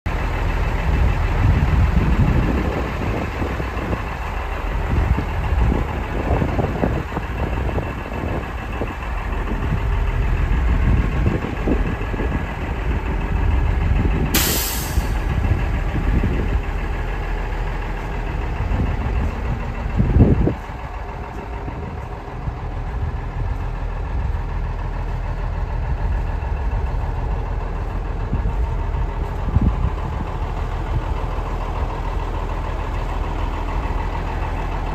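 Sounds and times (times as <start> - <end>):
diesel truck engine idling: 0.1 - 34.9
wind buffeting microphone: 0.1 - 34.9
air brake hiss: 14.3 - 15.3.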